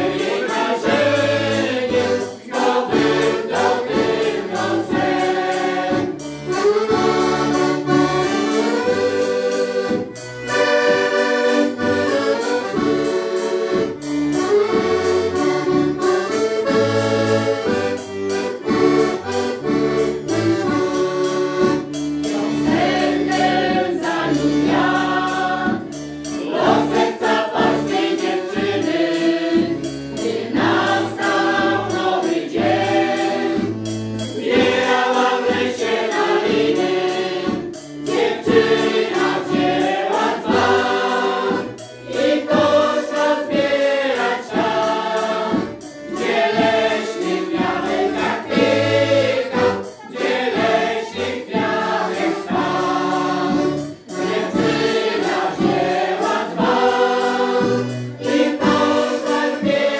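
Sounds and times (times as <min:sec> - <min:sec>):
choir singing: 0:00.0 - 0:13.1, 0:22.2 - 0:59.9
accordion: 0:00.0 - 0:59.9.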